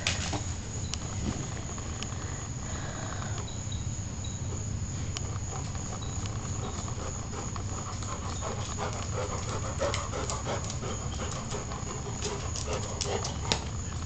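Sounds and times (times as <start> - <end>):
steady low hum: 0.0 - 14.0
dog panting: 4.5 - 13.8.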